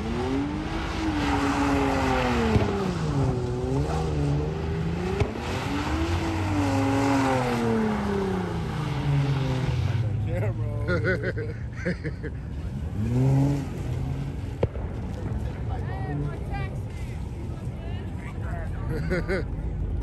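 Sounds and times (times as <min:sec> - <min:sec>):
car engine revving: 0:00.0 - 0:11.4, 0:12.0 - 0:16.4.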